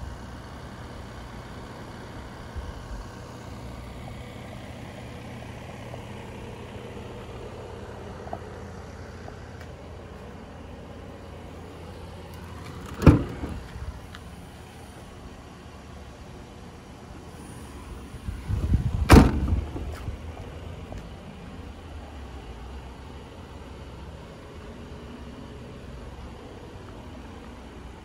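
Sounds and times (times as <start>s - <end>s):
steady low rumble: 5.6s - 23.4s
tailgate latch clunk: 12.6s - 13.8s, 19.0s - 20.0s.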